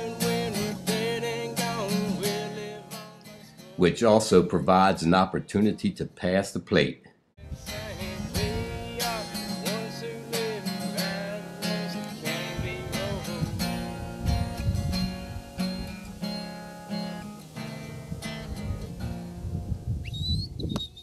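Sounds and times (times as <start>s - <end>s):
person singing: 0.0s - 3.9s, 7.4s - 14.3s
acoustic guitar strumming: 0.0s - 4.5s, 7.4s - 19.8s.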